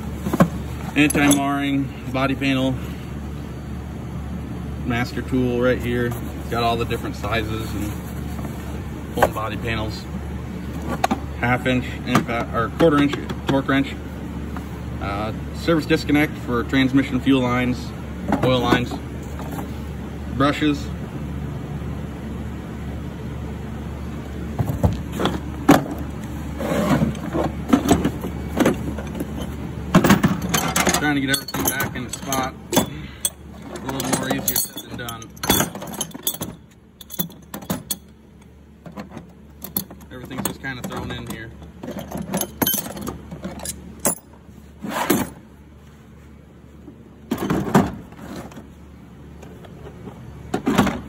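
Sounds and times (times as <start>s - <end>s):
tools clattering in drawer: 0.2s - 1.6s, 26.6s - 38.1s, 38.8s - 45.4s.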